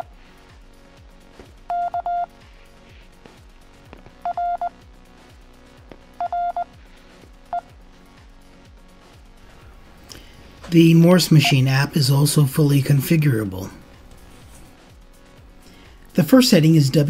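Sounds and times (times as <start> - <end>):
morse code beeps: 1.7 - 2.3, 4.2 - 4.8, 6.2 - 6.7, 7.5 - 7.7, 11.4 - 11.8.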